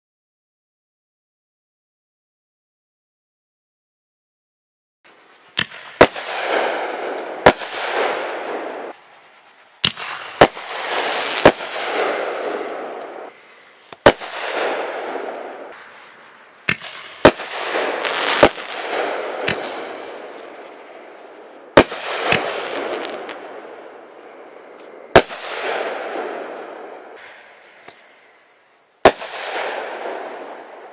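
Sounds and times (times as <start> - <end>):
hiss and crackle: 5.1 - 28.3
firework shells banging: 9.8 - 28.2.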